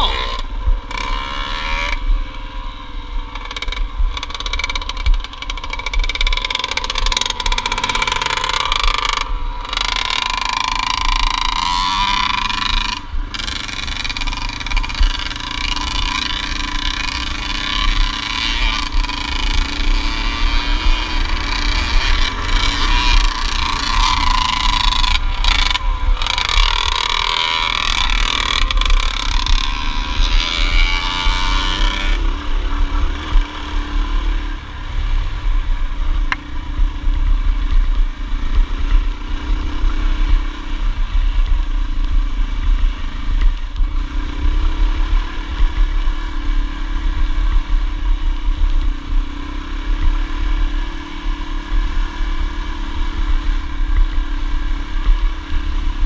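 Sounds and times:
dirt bike engine running: 0.0s - 56.0s
wind rumble on microphone: 0.0s - 56.0s.

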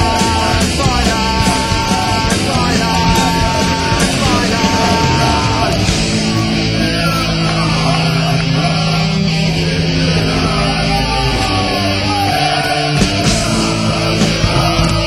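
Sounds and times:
heavy rock music: 0.0s - 15.0s.

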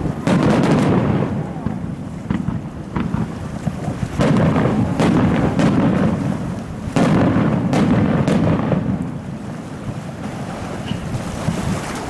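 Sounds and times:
sharp firework bangs: 0.0s - 9.1s
rumbling echo: 0.0s - 10.3s
fireworks booming: 0.0s - 11.6s.

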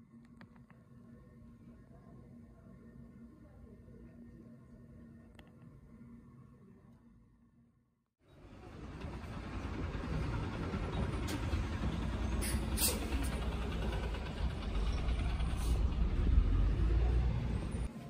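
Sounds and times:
street traffic rumble: 8.2s - 18.0s.

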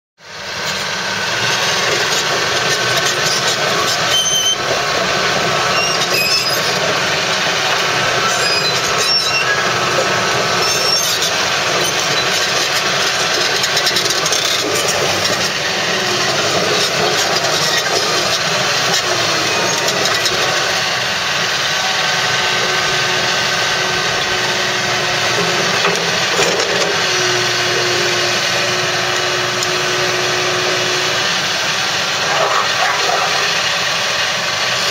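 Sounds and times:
excavator engine and hydraulics: 0.2s - 34.9s
steady whine: 28.0s - 34.9s.

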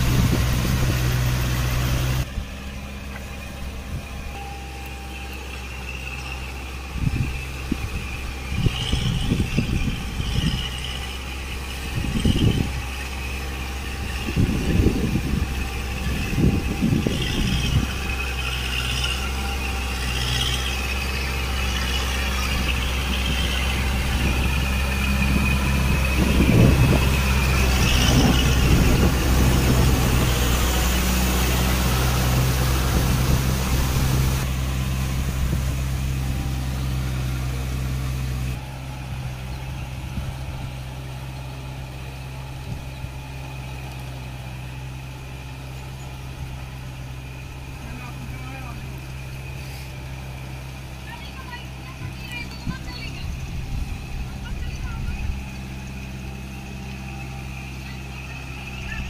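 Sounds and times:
wavering high whine: 0.0s - 43.2s
low rumbles: 0.0s - 59.0s
tractor diesel engine running: 0.0s - 59.0s.

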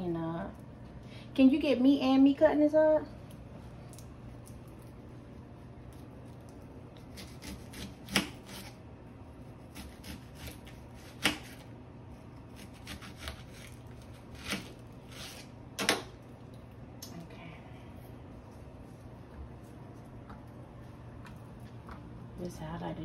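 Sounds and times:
knife slicing an onion: 6.9s - 16.1s.

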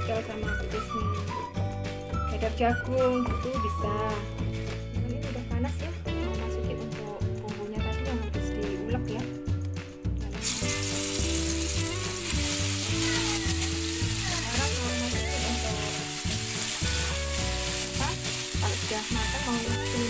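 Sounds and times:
background music: 0.0s - 20.0s
paste sizzling in hot oil: 10.4s - 20.0s.

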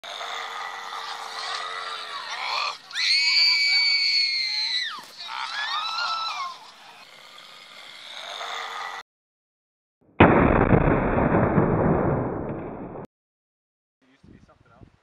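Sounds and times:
high-pitched screaming: 0.4s - 6.8s.

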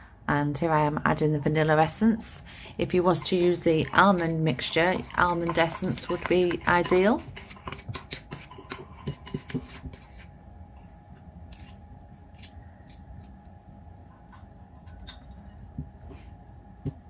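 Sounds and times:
metal spoon scraping ceramic bowl: 3.1s - 10.2s.

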